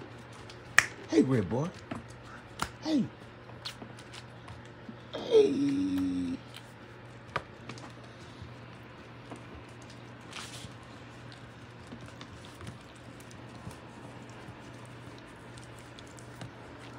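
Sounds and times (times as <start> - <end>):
steady low hum: 0.0 - 16.9
puppy claws clicking on wood floor: 6.5 - 16.9.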